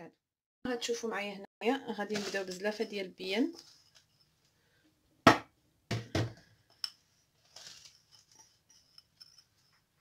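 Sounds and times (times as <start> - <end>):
soft scrape of ground peanuts: 7.4 - 8.7.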